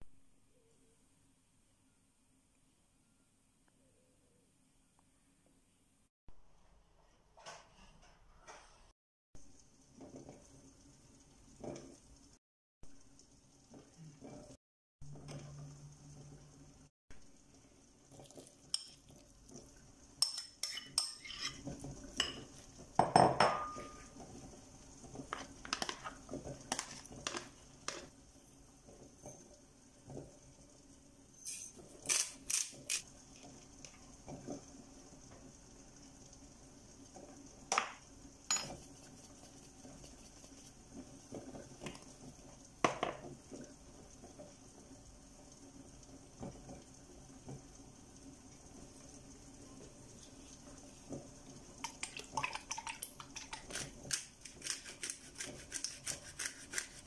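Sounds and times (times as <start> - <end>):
spoons clinking on ceramic bowl: 38.5 - 38.9.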